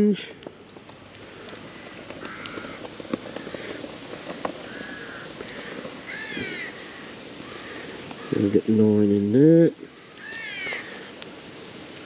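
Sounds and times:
crow cawing: 0:01.3 - 0:08.5, 0:09.9 - 0:11.1.

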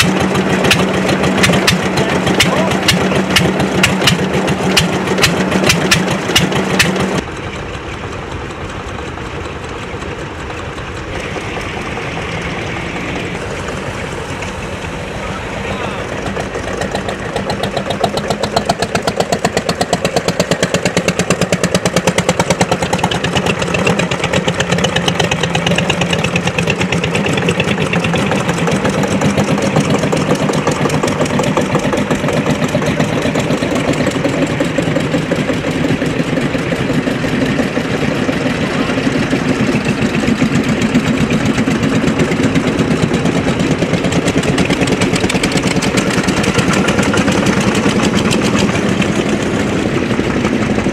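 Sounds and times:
tractor engines driving past: 0:00.0 - 0:50.9.

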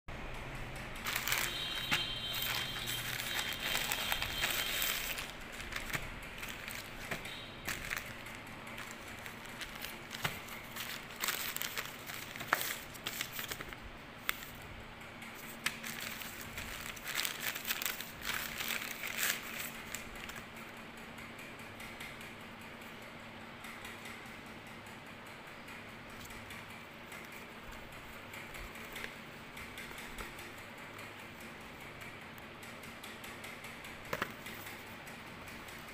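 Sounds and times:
plastic packaging crinkling: 0:01.0 - 0:14.6, 0:15.4 - 0:20.5.

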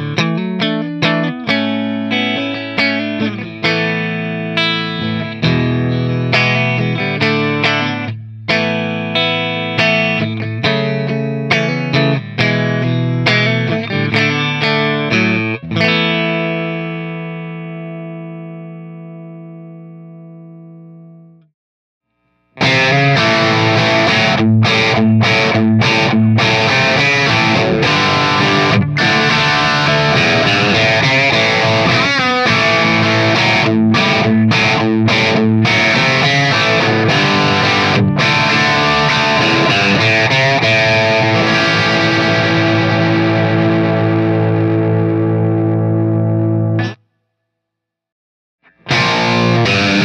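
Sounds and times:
overdriven electric guitar riff: 0:00.0 - 0:21.4, 0:22.3 - 0:47.0, 0:48.6 - 0:50.0
clean electric guitar note: 0:22.6 - 0:47.0, 0:48.7 - 0:50.0.

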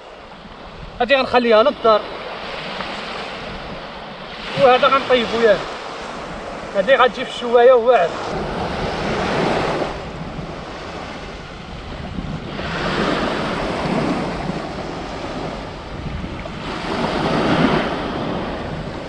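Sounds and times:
sea surf washing on shore: 0:00.0 - 0:19.0
wind on microphone: 0:00.0 - 0:19.0.

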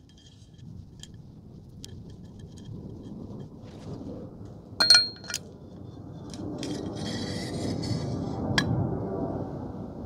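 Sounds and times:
sharp ringing knocks: 0:04.8 - 0:05.4
metal parts clinking: 0:04.8 - 0:05.5.

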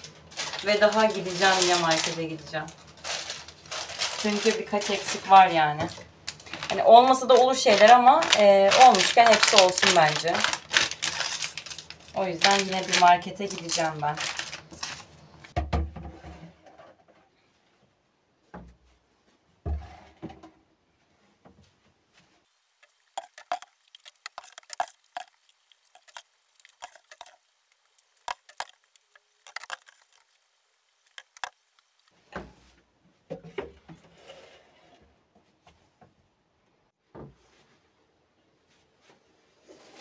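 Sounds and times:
plastic bottles knocking on shelf: 0:15.6 - 0:16.3.

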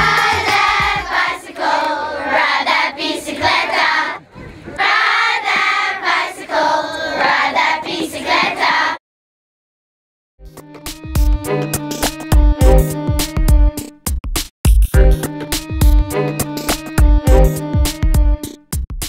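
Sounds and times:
children singing in unison: 0:00.0 - 0:04.2, 0:04.8 - 0:09.0.

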